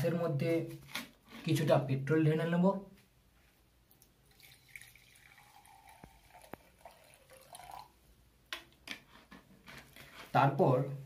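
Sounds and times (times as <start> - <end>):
liquid trickling into glass: 4.2 - 8.0.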